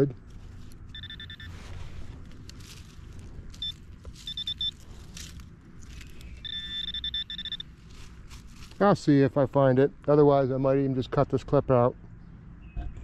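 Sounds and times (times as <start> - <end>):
soil scraping and rustling: 0.0 - 9.4
high pinpointer beeps: 0.9 - 1.6, 3.6 - 4.9, 6.2 - 7.7.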